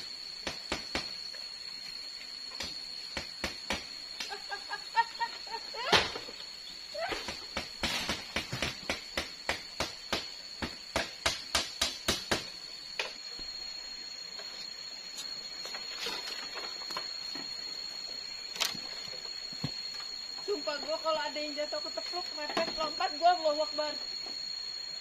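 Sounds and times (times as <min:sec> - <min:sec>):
high-pitched insect drone: 0:00.0 - 0:25.0
knocks on bamboo: 0:07.3 - 0:13.1.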